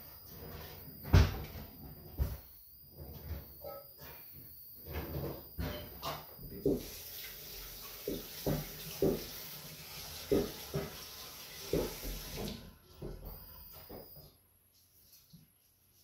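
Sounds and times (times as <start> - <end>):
kitchen tap running into sink: 6.6 - 12.7.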